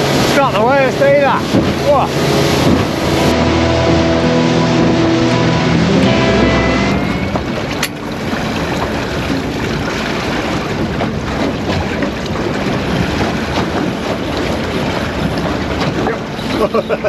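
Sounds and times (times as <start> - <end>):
water slapping against boat hull: 0.0 - 3.4, 7.6 - 17.0
wind buffeting microphone: 0.0 - 5.8, 7.2 - 17.0.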